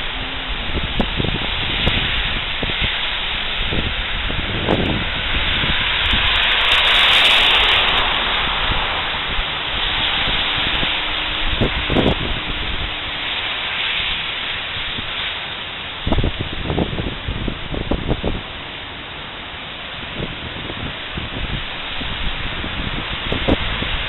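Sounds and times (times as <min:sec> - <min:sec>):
car passing: 0:00.0 - 0:17.1
tyres swishing on wet pavement: 0:00.0 - 0:24.0
wind: 0:00.0 - 0:24.0.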